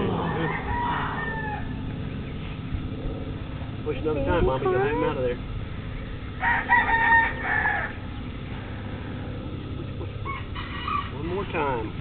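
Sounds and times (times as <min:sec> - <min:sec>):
rooster crowing: 0:00.0 - 0:02.0, 0:06.4 - 0:08.2, 0:10.2 - 0:11.4.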